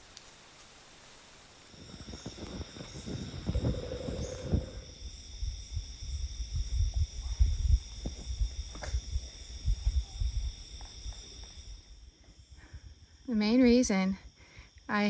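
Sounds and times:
insects chirring: 0.0s - 15.0s
low thumps and rumble: 1.8s - 11.0s.

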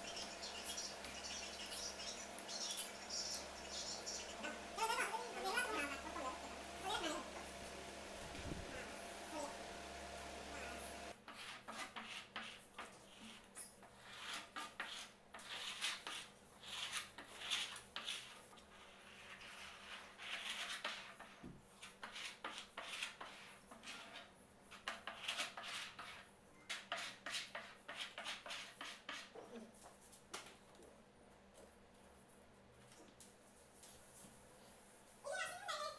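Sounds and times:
spreader scraping glue on wood: 10.9s - 29.4s.

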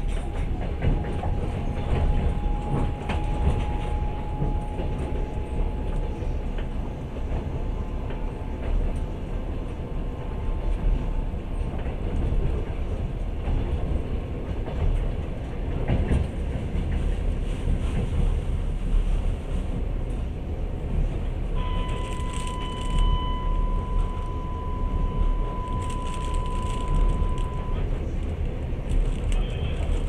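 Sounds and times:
train wheels rumbling on rail: 0.0s - 30.0s
steady high tone: 21.6s - 28.0s.

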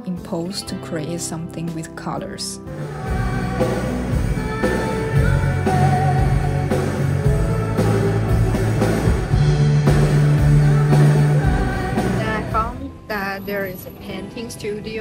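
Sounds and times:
rock band playing live: 2.7s - 12.7s
person singing: 2.8s - 9.4s, 10.2s - 12.9s.

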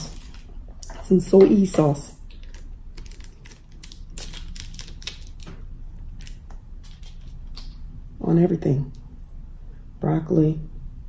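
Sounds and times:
plastic packet crinkling and tearing: 0.0s - 0.6s, 2.3s - 7.7s.

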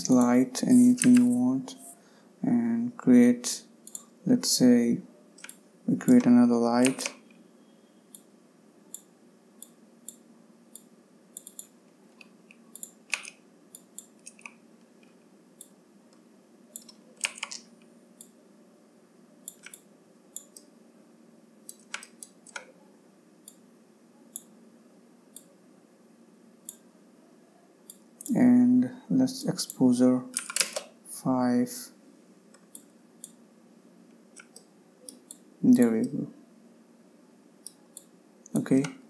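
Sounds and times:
computer mouse clicks: 0.0s - 2.0s, 3.8s - 4.1s, 5.4s - 7.4s, 8.9s - 15.8s, 16.7s - 18.4s, 19.4s - 20.7s, 21.7s - 22.7s, 24.3s - 24.5s, 26.6s - 26.8s, 32.5s - 33.4s, 34.3s - 36.2s, 37.6s - 39.0s
faint low hum: 0.0s - 39.0s.

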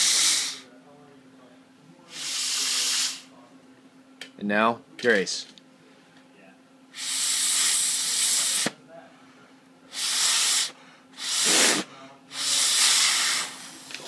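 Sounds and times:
breath blown through a straw: 9.9s - 13.6s.

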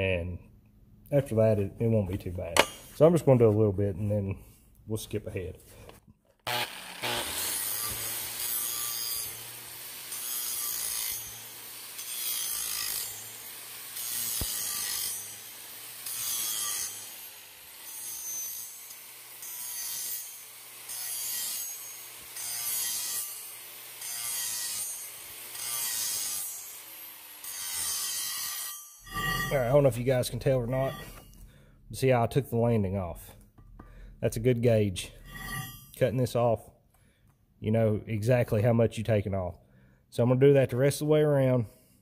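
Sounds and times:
angle grinder grinding steel: 6.5s - 31.4s, 35.0s - 36.0s.

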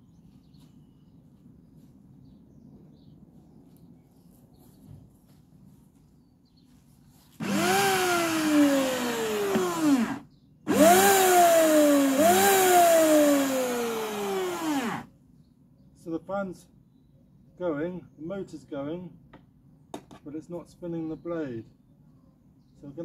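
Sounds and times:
electric mower motor whine: 7.4s - 15.1s.

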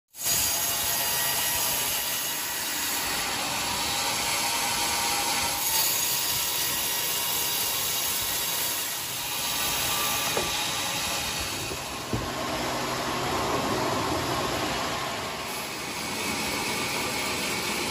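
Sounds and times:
band saw cutting log: 0.2s - 17.9s
short knock: 10.2s - 10.7s, 11.6s - 12.4s.

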